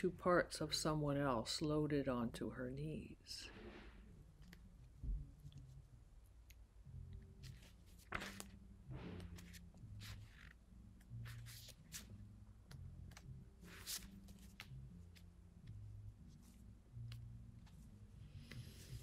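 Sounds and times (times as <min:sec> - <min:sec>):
paper pages rustling: 0:07.4 - 0:12.1, 0:13.1 - 0:15.2.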